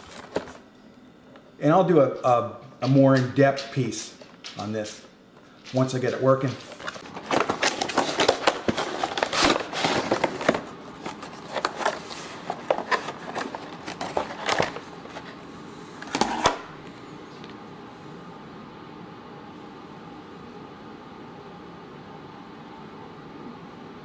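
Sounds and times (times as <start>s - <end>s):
packaging crinkling and rustling: 0.0s - 0.6s, 5.8s - 15.4s.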